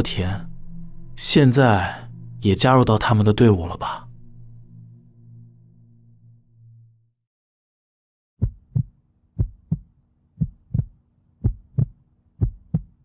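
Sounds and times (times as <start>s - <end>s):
faint low drone: 0.0s - 7.2s
heartbeat thumps: 8.4s - 13.0s.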